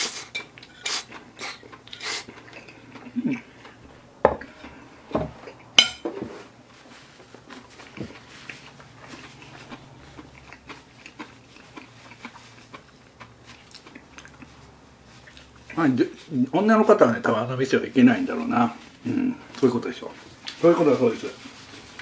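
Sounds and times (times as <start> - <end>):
tissue paper rustling: 6.4 - 8.8, 20.1 - 22.0.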